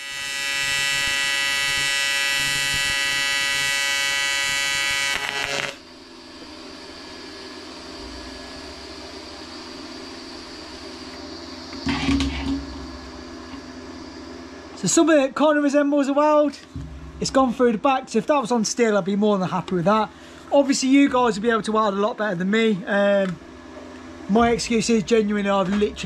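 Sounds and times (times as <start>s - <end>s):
welder hiss and hum: 0.0s - 5.9s
welding arc buzzing: 0.0s - 6.1s.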